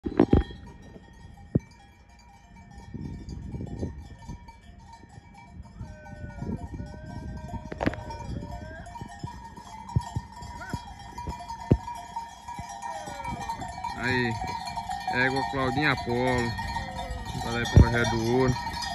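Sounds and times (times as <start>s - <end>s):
cowbells clanking: 0.0s - 18.9s
hooves thudding on dirt road: 0.0s - 18.9s.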